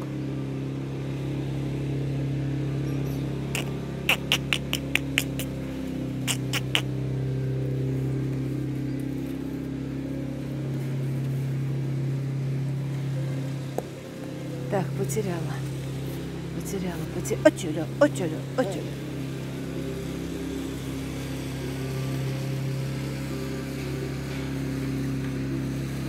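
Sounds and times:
short sharp high squeaks: 0:03.6 - 0:05.5, 0:06.3 - 0:06.8.

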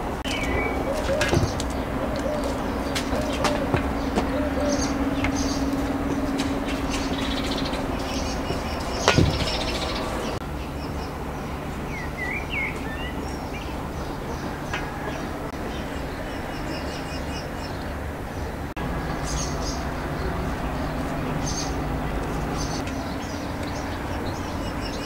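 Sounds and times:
low hum: 0:00.0 - 0:16.6
bird chirping: 0:00.2 - 0:25.0
loud knock: 0:09.0 - 0:09.8.

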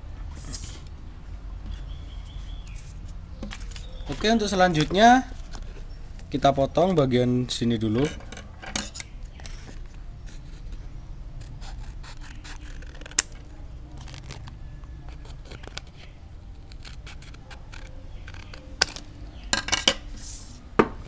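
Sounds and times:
scissors snipping paperboard: 0:11.4 - 0:19.0.

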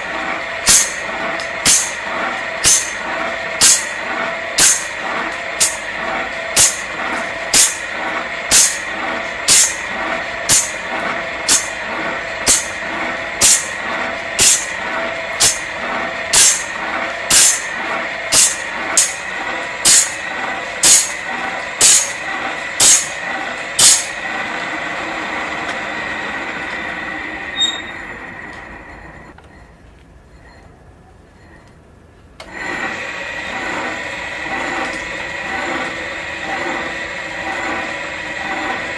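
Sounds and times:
grinding wheel hissing against blade: 0:00.0 - 0:28.1, 0:32.5 - 0:38.9.

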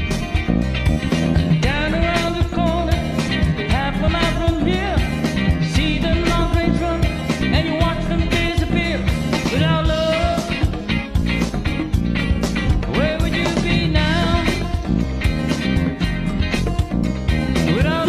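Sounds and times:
rock backing track: 0:00.0 - 0:18.0
person singing: 0:01.6 - 0:10.9, 0:12.6 - 0:15.6, 0:17.4 - 0:18.0.

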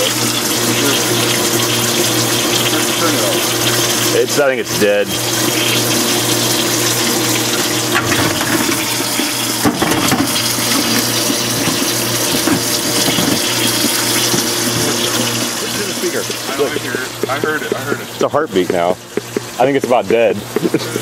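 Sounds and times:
dishwasher pump motor humming: 0:00.0 - 0:21.0
water spraying and splashing: 0:00.0 - 0:21.0.

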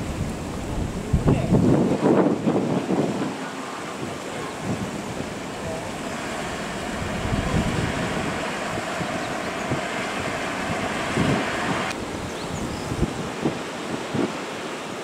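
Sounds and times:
crane engine and hydraulics drone: 0:04.9 - 0:12.0
faint hydraulic whine: 0:05.0 - 0:12.0.

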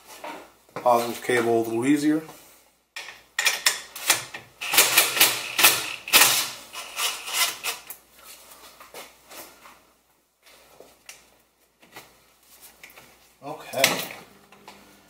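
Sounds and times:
cordless drill bursts: 0:04.6 - 0:07.9.

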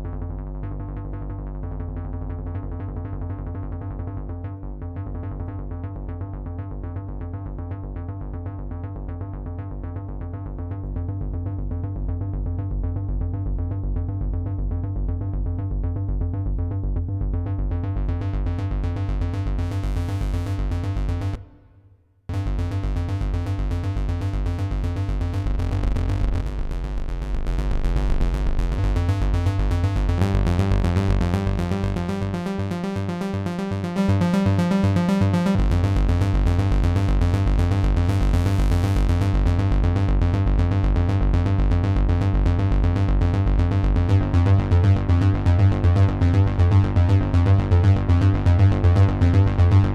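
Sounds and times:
fast synth bass pattern: 0:22.3 - 0:49.9.

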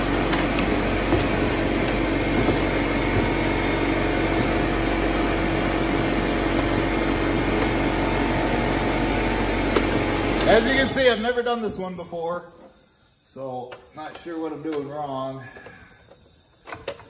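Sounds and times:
motor droning: 0:00.0 - 0:11.0.

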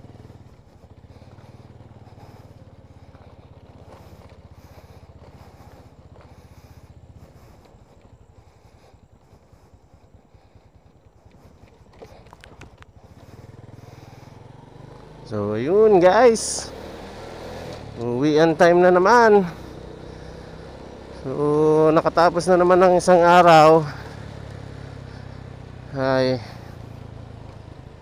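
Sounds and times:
motorcycle engine idling: 0:00.0 - 0:28.0
sharp clicks: 0:12.0 - 0:13.0.

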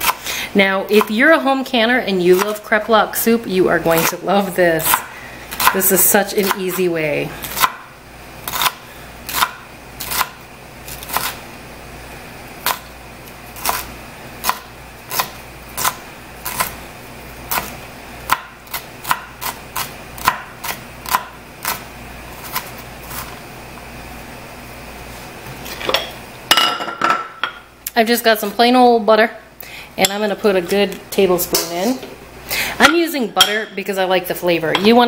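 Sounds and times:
knife chopping on cutting board: 0:04.8 - 0:05.8, 0:18.3 - 0:21.8.

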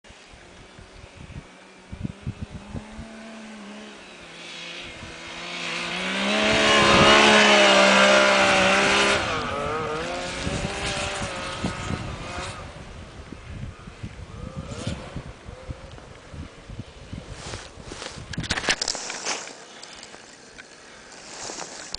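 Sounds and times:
snowmobile engine passing by: 0:00.1 - 0:15.8.

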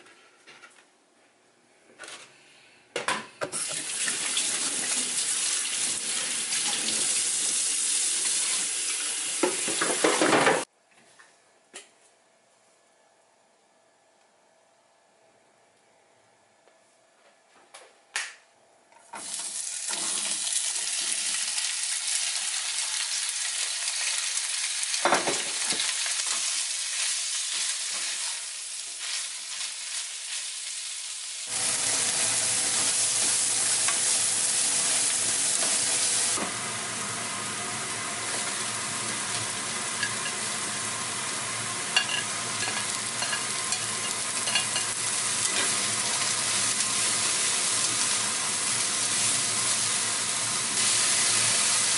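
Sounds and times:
vegetables sizzling in oil: 0:19.2 - 0:51.9.

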